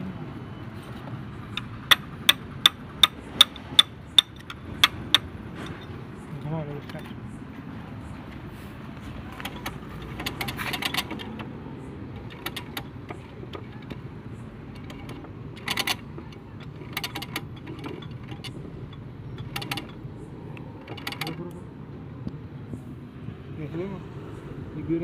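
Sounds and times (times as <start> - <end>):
metal tools clinking: 3.4 - 6.0.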